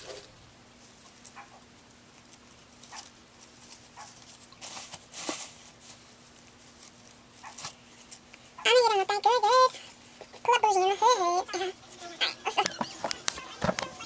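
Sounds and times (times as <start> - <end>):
gift bag and paper crinkling: 0.0 - 8.3, 11.9 - 14.0.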